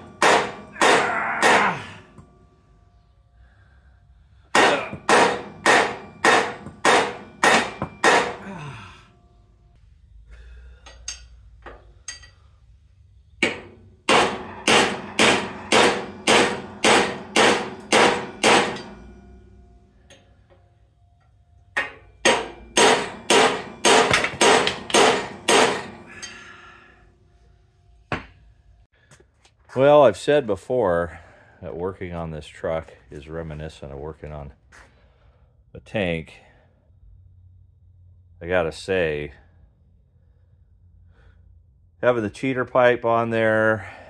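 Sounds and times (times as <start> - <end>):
hammer striking steel: 0.0 - 2.5, 4.5 - 8.7, 13.4 - 20.2, 21.8 - 26.5.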